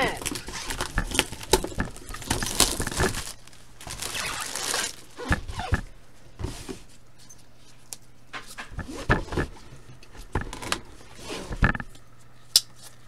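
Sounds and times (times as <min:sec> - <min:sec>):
plastic shrink-wrap crinkling and tearing: 0:00.0 - 0:05.8.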